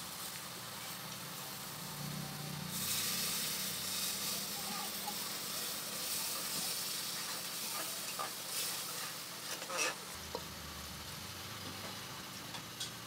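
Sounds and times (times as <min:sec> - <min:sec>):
curry sizzling in a pot: 0:00.0 - 0:13.0
spoon scraping against a pot: 0:07.7 - 0:10.0.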